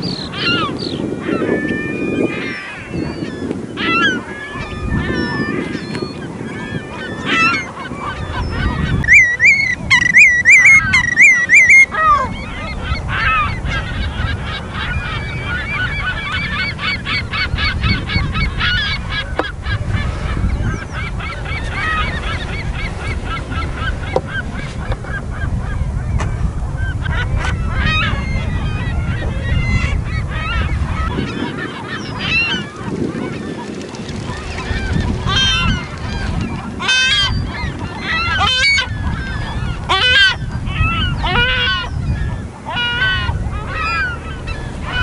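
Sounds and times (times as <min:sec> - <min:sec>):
shorebirds calling: 0:00.0 - 0:45.0.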